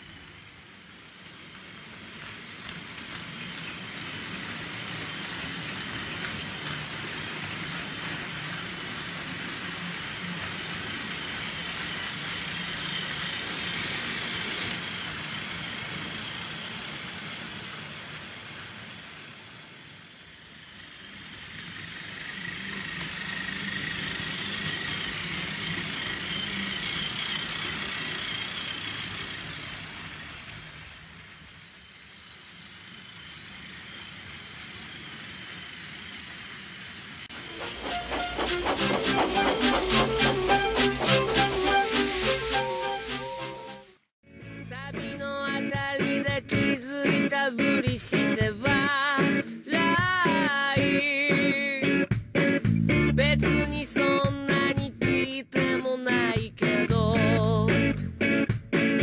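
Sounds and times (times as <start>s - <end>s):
toy train wheels rattling: 0.0s - 43.7s
toy train motors whirring: 0.0s - 44.0s, 45.0s - 52.0s.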